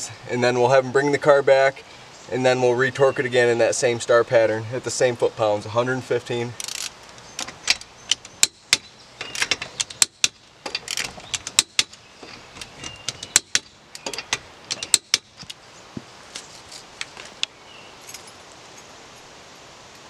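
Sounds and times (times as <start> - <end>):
torque wrench sharp clicks: 6.6 - 15.6.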